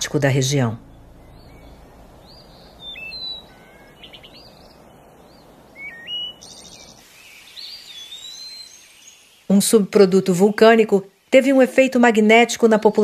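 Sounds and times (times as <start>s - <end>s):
birds chirping and whistling: 0.0s - 9.5s
low background hiss: 0.0s - 13.0s.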